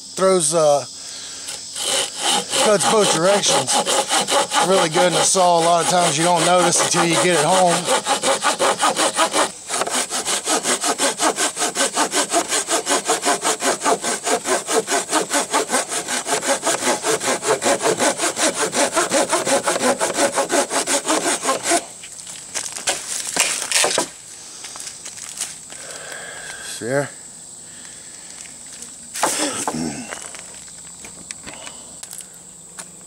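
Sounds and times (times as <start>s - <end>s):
hand saw cutting a log: 1.4s - 21.9s, 23.4s - 24.1s.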